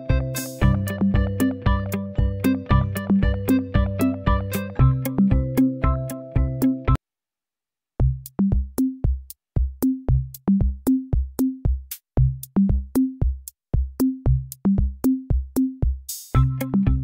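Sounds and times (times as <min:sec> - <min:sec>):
drum machine beat: 0:00.0 - 0:07.0, 0:08.0 - 0:17.0
synth melody: 0:00.0 - 0:07.0.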